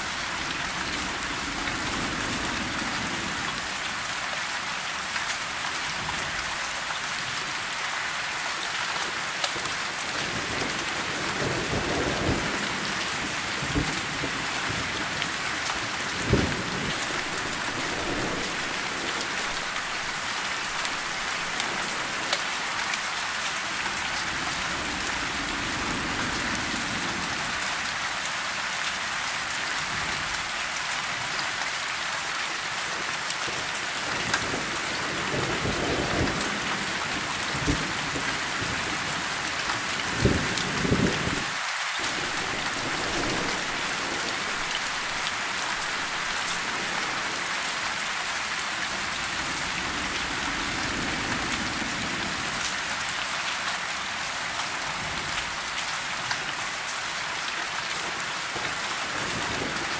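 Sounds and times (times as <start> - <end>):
rain falling on leaves: 0.0 - 59.9
thunder rumbling: 16.0 - 22.3, 40.1 - 47.4.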